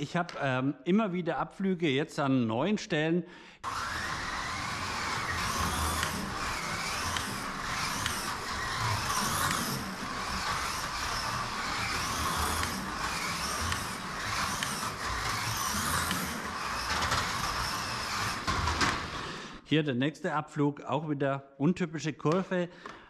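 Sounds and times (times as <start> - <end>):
slot car running noise: 3.6 - 19.5
slot car motor whining: 3.6 - 19.6.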